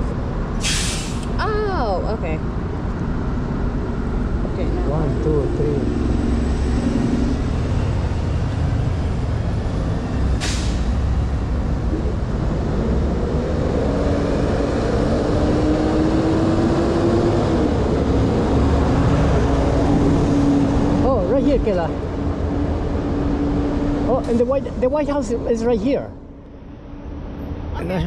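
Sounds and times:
street traffic rumbling: 0:00.0 - 0:28.0
air brake hiss: 0:00.6 - 0:01.3, 0:10.4 - 0:10.9
engine droning: 0:01.2 - 0:28.0.

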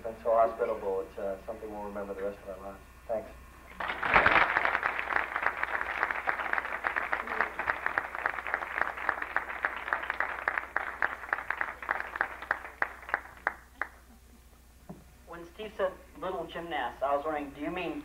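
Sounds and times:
audience applauding: 0:03.8 - 0:14.1.

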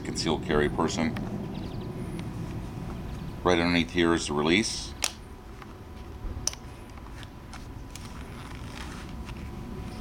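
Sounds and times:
steady low rumble: 0:00.0 - 0:10.0
nylon belt rustling: 0:06.8 - 0:10.0.

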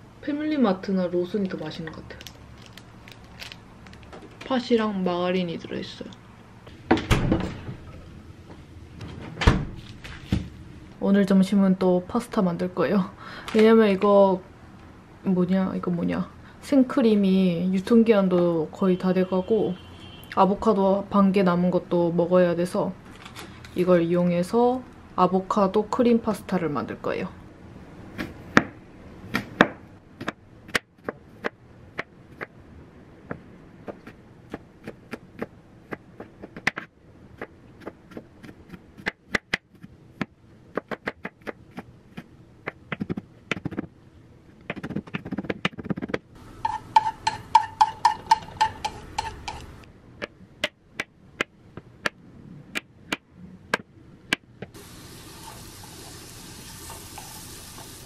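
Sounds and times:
utensils and containers knocking: 0:46.6 - 0:49.7
running water: 0:54.8 - 0:58.0.

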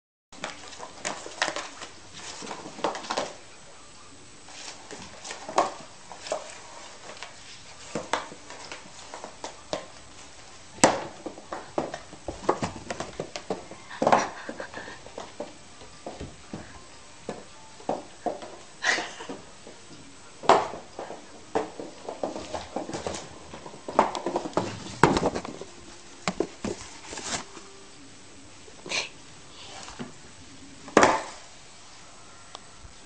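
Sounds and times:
cardboard box knocking on tile floor: 0:00.4 - 0:03.4, 0:04.9 - 0:10.0, 0:10.8 - 0:16.7, 0:20.4 - 0:27.4, 0:31.0 - 0:31.4.

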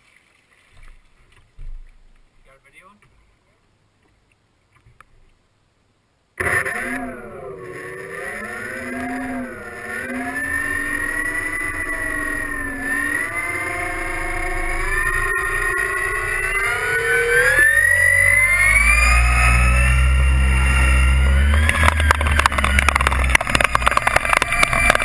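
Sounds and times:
electric motors and propellers whining: 0:06.4 - 0:25.0.

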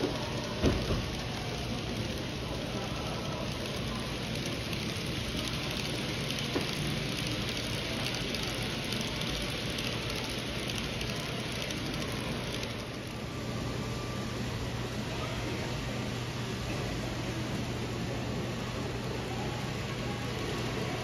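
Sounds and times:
model train wheels rattling: 0:00.0 - 0:13.4.

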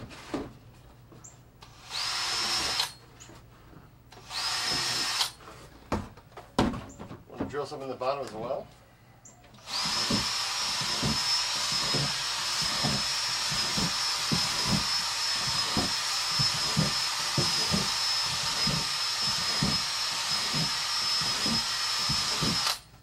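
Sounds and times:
cordless drill whining: 0:01.6 - 0:03.1, 0:04.1 - 0:05.5, 0:09.5 - 0:23.0
drill bit knocking through plastic: 0:09.6 - 0:22.8.

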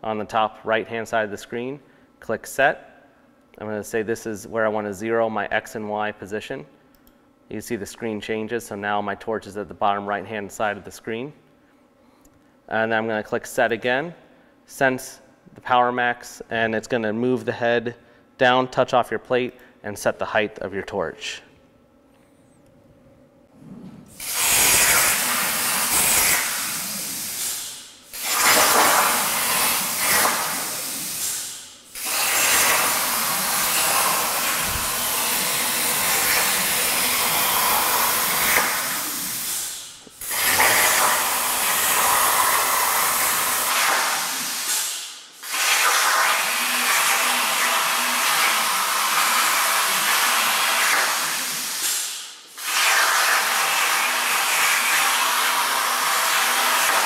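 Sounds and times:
plasma torch cutting steel hiss: 0:24.1 - 0:57.0.

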